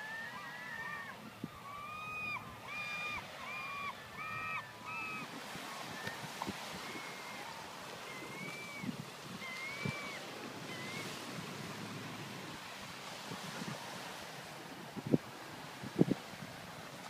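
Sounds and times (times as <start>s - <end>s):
wind on microphone: 0.0s - 17.0s
bird calls: 1.7s - 6.2s
waves washing onto pebbles: 4.7s - 17.0s.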